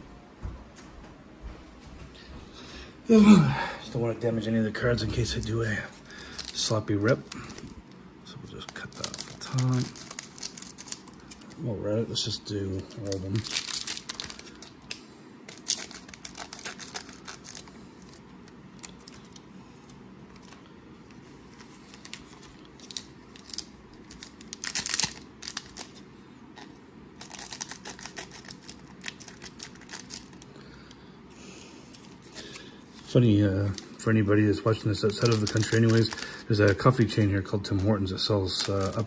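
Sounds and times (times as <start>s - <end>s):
plastic wrappers crinkling: 4.2s - 30.5s, 31.8s - 39.0s
scissors snipping plastic wrappers: 8.6s - 11.5s, 12.8s - 18.1s, 27.2s - 30.4s, 34.8s - 37.0s, 37.7s - 39.0s.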